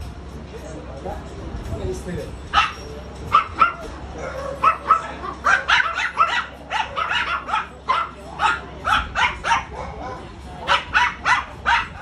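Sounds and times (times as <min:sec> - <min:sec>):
dog barking high-pitched: 0:02.5 - 0:12.0.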